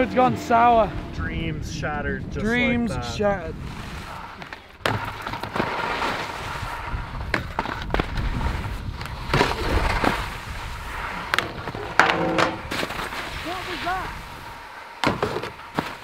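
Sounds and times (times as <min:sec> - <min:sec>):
skis scraping across snow: 0:03.0 - 0:12.0, 0:12.6 - 0:16.0.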